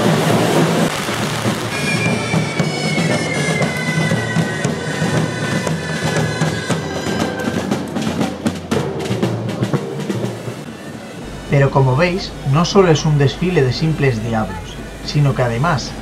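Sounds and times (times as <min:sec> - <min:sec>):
percussion band drumming: 0:00.0 - 0:16.0
high whistling tone falling: 0:01.5 - 0:07.7.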